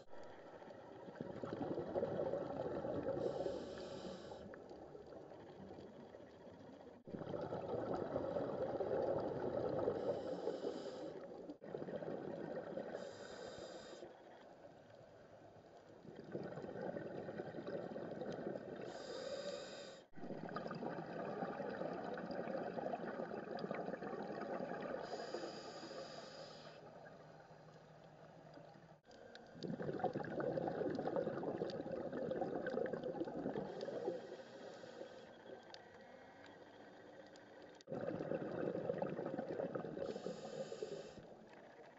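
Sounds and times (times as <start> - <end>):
bubbling exhales underwater: 1.0 - 3.6, 7.0 - 10.7, 11.3 - 13.1, 16.0 - 19.0, 20.2 - 25.4, 29.5 - 34.4, 37.8 - 41.4
regulator inhale hiss: 3.2 - 4.5, 10.0 - 11.3, 12.9 - 14.2, 18.8 - 20.1, 25.0 - 26.9, 33.7 - 35.4, 40.0 - 41.3.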